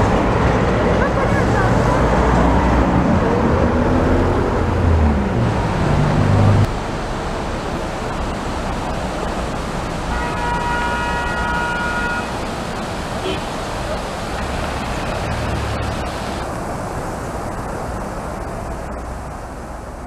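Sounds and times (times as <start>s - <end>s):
vehicle passing: 0.0s - 8.7s, 14.2s - 16.5s
river water pouring over weir: 0.0s - 20.0s
horn sounding: 10.1s - 12.5s.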